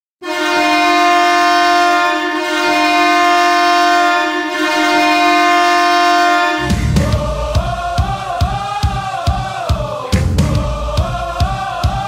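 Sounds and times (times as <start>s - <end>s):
goal horn blast: 0.2s - 7.3s.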